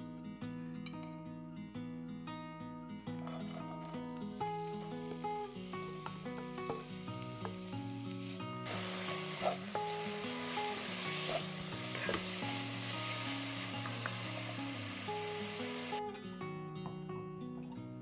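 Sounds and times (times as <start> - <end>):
acoustic guitar music: 0.0 - 18.0
onions sizzling in pot: 3.2 - 16.0.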